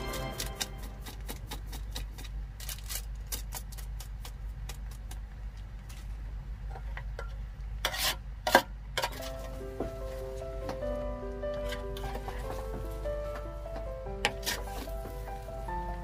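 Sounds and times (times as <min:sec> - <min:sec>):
metal ladle scraping pot: 0:14.2 - 0:14.9.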